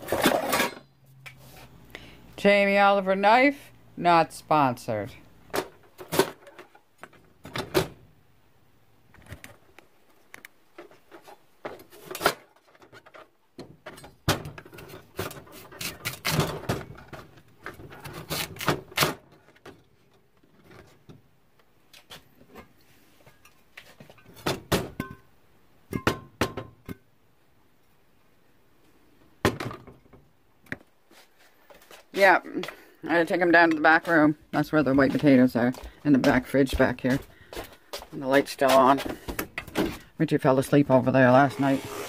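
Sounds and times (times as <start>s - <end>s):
household items clattering: 0.0s - 0.9s
rustling: 31.0s - 33.0s.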